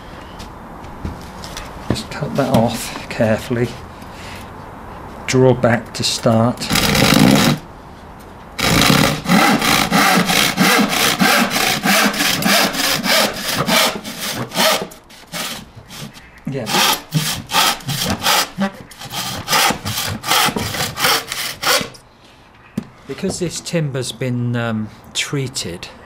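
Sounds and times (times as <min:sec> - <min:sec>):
hand saw cutting wood: 0:06.6 - 0:07.6, 0:08.6 - 0:22.0.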